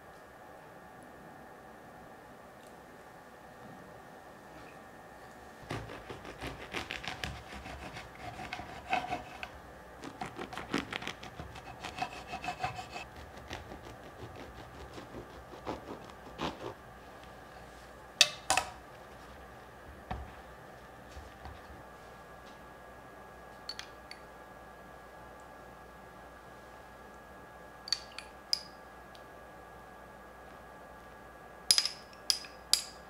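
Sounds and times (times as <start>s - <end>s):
knife sawing through bread: 5.7s - 16.8s.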